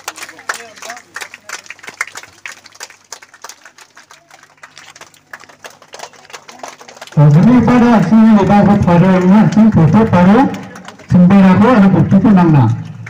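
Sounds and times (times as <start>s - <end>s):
crowd clapping: 0.0s - 13.0s
low steady hum: 0.0s - 13.0s
faint background chatter: 3.4s - 7.2s.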